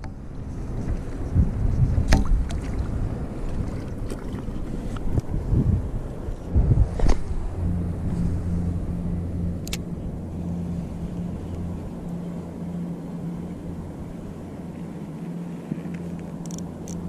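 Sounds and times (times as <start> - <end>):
sharp click: 9.6 - 9.9.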